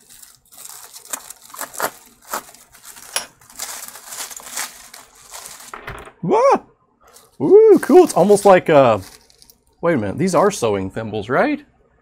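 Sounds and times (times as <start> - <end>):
bubble wrap crinkling: 0.0 - 5.8, 7.1 - 9.8
man exclaiming: 6.2 - 6.7, 7.4 - 8.6.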